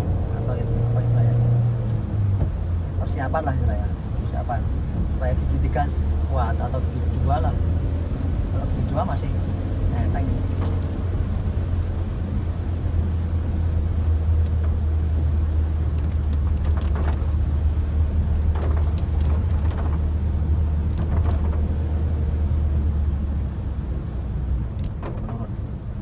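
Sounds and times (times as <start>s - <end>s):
car engine under load: 0.0s - 26.0s
road and tyre noise: 0.0s - 26.0s.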